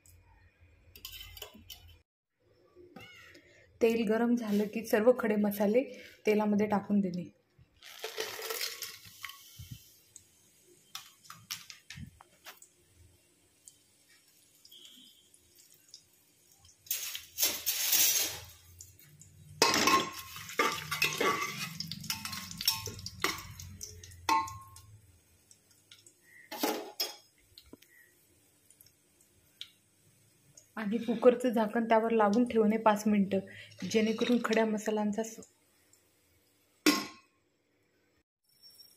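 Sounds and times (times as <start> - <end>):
metal cookware clattering: 1.0 - 2.0, 19.5 - 24.9, 26.5 - 27.3, 33.8 - 34.6, 36.8 - 37.3.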